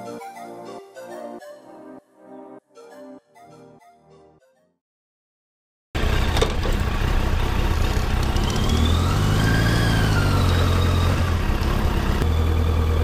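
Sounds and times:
motorcycle engine running: 0:06.0 - 0:13.0.

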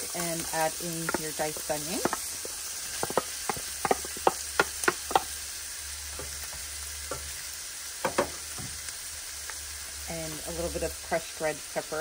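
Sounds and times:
meat and onions sizzling in pan: 0:00.0 - 0:12.0
utensils knocking and scraping pan: 0:00.9 - 0:05.3.

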